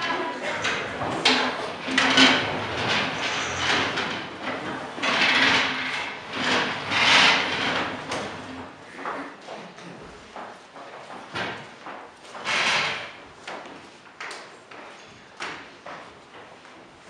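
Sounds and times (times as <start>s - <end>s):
desks and chairs scraping on stage: 0.0s - 9.3s, 11.4s - 13.7s.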